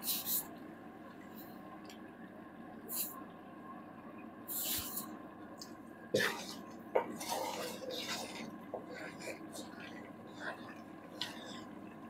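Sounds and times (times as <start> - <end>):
wooden spatula scraping a pan: 6.2 - 11.7.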